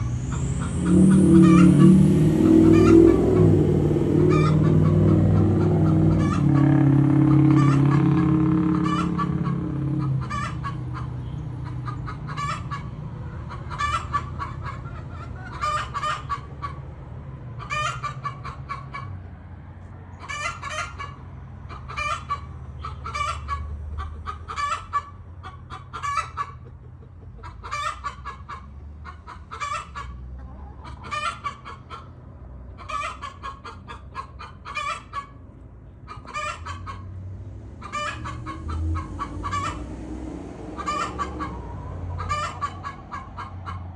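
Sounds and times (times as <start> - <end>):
low steady rumble: 0.0 - 11.5, 37.2 - 43.9
hen clucking: 0.3 - 16.9, 17.6 - 19.2, 20.1 - 37.2, 37.8 - 40.0, 40.6 - 43.9.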